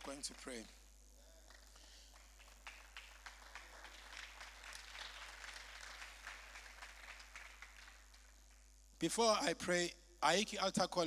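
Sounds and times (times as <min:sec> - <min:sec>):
congregation clapping: 0:00.0 - 0:00.8, 0:01.4 - 0:08.7.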